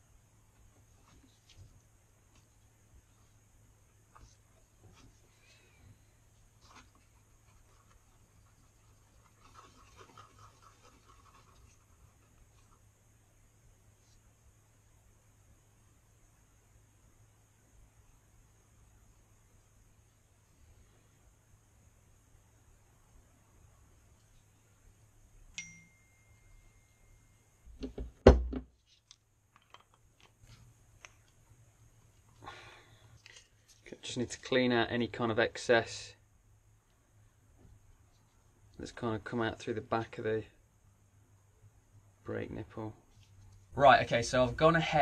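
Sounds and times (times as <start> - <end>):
metal tap with ringing tone: 25.5 - 27.5
knocks on workbench: 27.8 - 28.7
loud thump: 27.8 - 28.7.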